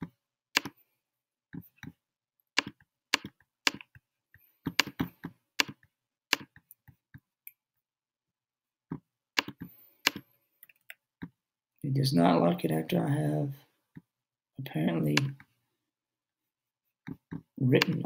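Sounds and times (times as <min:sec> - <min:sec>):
laptop clicks and taps: 0:00.0 - 0:00.8, 0:02.6 - 0:04.0, 0:04.6 - 0:07.0, 0:08.9 - 0:11.4, 0:17.1 - 0:18.0.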